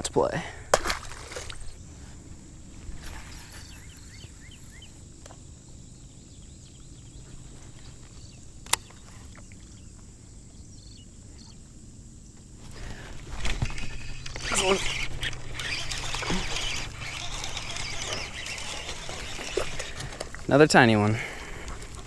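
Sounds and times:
short bird chirps: 0:03.1 - 0:05.0.

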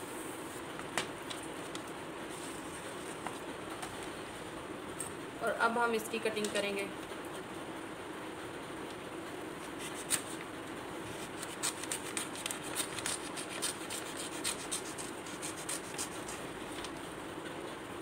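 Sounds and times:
paper rustling and crackling: 0:11.1 - 0:15.0.

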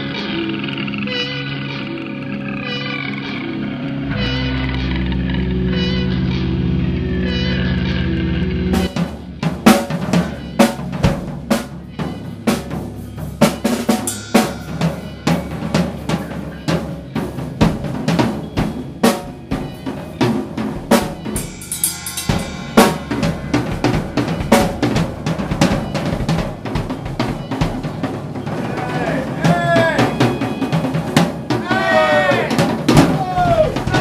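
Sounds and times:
metal band playing: 0:00.0 - 0:34.0
drum kit beats: 0:08.6 - 0:34.0
ringing cymbals: 0:08.8 - 0:31.6.

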